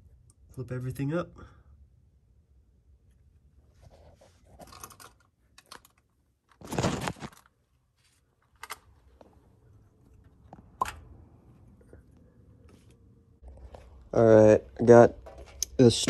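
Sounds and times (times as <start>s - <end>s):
light clicks of handling parts: 8.4s - 9.4s.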